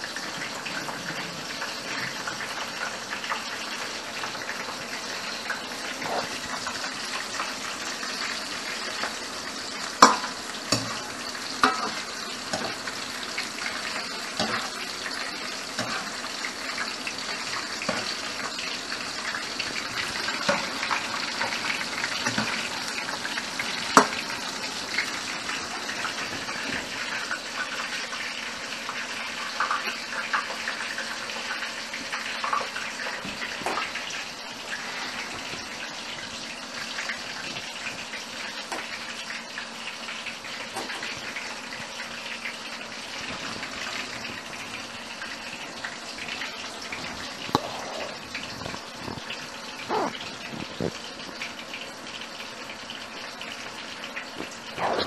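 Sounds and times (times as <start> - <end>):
tap water running into sink: 0.0 - 28.3.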